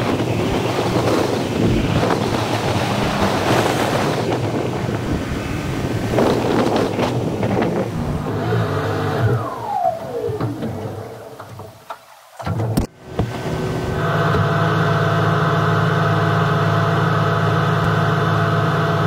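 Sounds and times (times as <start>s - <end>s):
wind noise on microphone: 0.0s - 16.2s
car road and engine noise: 0.0s - 19.0s
brief falling whine: 7.9s - 11.4s.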